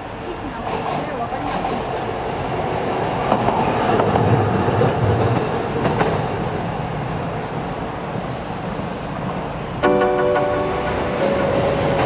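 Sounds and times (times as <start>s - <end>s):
tram rumbling over rails: 0.0s - 12.0s
crossing warning bell ringing: 9.8s - 12.0s.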